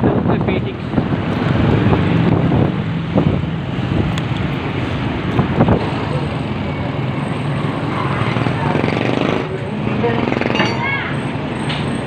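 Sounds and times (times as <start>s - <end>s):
wind noise on microphone: 0.0s - 6.1s.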